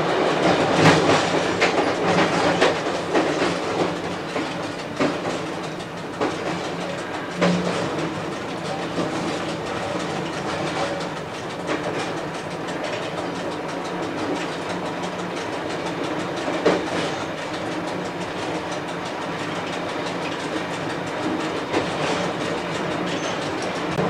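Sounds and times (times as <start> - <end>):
train running noise: 0.0 - 24.0
wheels clicking over rail joints: 0.2 - 24.0.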